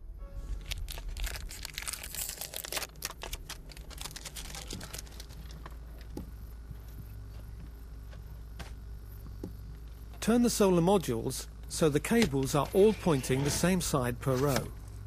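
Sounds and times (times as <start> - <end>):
steady low rumble: 0.0 - 12.1
cardboard packaging crinkling: 0.6 - 6.1.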